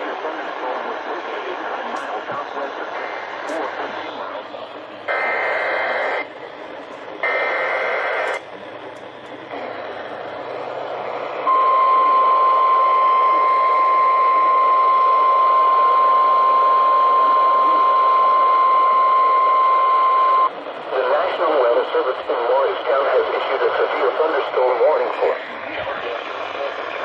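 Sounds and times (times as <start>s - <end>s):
radio hiss: 0.0s - 19.8s, 20.4s - 27.0s
steady attention tone: 2.8s - 20.5s
screeching data burst: 5.1s - 6.3s, 7.2s - 8.4s.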